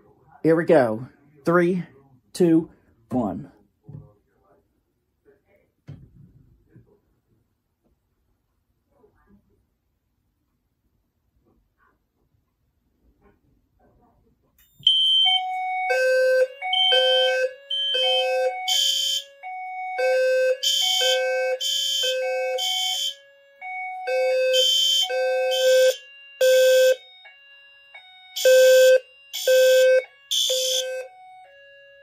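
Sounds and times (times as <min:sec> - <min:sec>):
fire alarm beeping: 0:14.7 - 0:32.0
harsh alarm horn blasts: 0:14.8 - 0:32.0.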